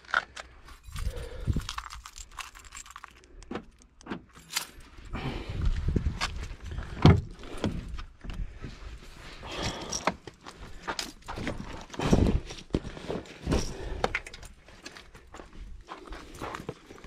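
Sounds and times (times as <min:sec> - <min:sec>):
handling noise clicks and knocks: 0:01.7 - 0:04.7
wind rumble on microphone: 0:05.1 - 0:08.7.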